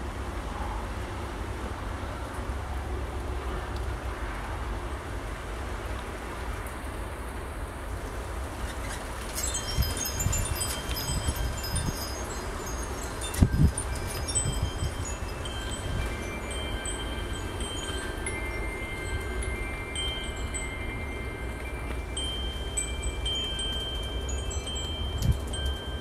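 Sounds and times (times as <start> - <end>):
low wind rumble on microphone: 0.0 - 26.0
gust buffeting microphone: 7.7 - 26.0
wind chimes ringing: 9.2 - 26.0.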